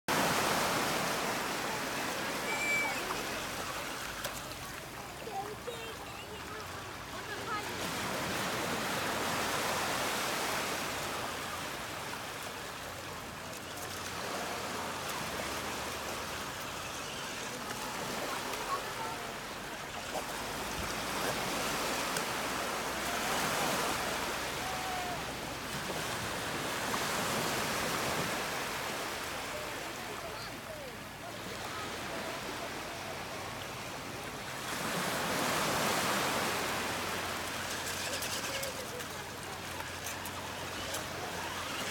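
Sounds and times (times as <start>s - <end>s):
surf washing over pebbles: 0.1s - 41.9s.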